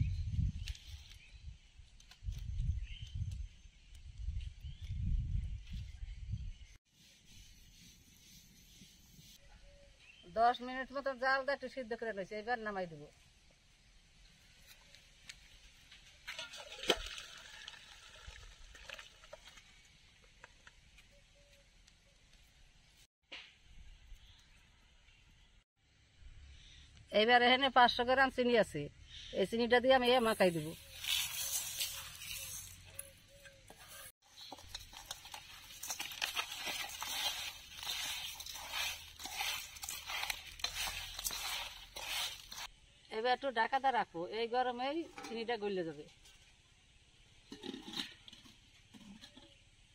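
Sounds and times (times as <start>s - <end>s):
water pouring into colander: 16.3s - 19.6s, 34.5s - 42.6s
hands mixing sugar in metal bowl: 30.1s - 33.1s, 33.7s - 42.7s.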